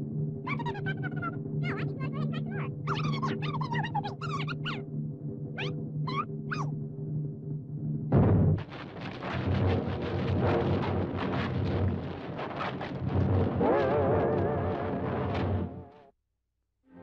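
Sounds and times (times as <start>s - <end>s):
squeaky cartoon critter chirps: 0.5s - 4.8s, 5.6s - 6.7s.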